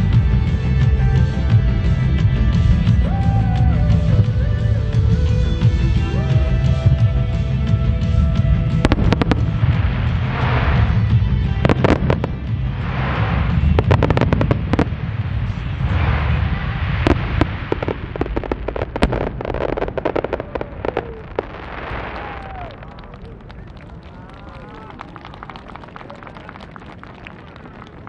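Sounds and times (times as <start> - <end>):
firework crackle: 8.0 - 28.0.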